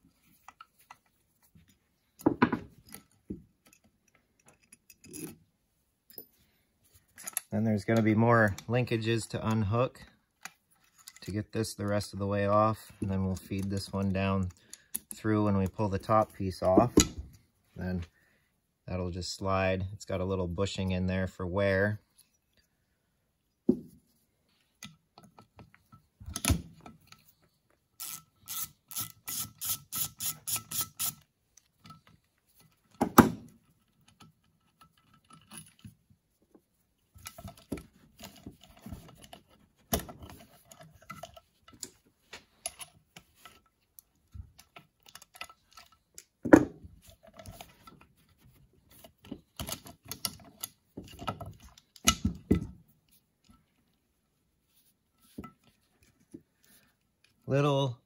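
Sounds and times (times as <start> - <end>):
metal parts clicking and knocking: 2.2 - 5.4, 7.1 - 8.7, 28.0 - 36.0, 37.2 - 52.8.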